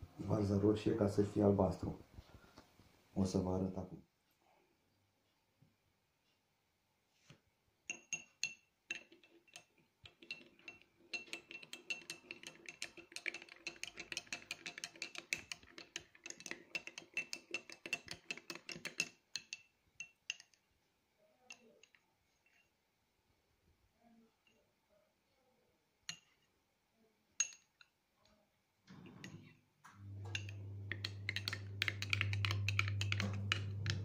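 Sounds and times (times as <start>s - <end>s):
spoon clinking in a glass: 7.9s - 20.6s, 27.4s - 27.9s, 30.0s - 34.0s.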